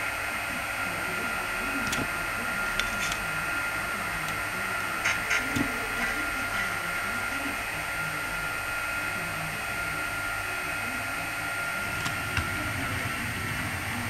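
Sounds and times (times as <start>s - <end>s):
model train motor whine: 0.0s - 14.0s
wheels clicking on track: 1.0s - 7.2s, 11.8s - 14.0s.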